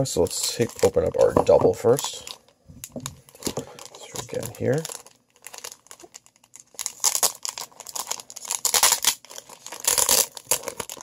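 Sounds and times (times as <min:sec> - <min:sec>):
plastic wrapping crinkling and tearing: 0:00.0 - 0:11.0.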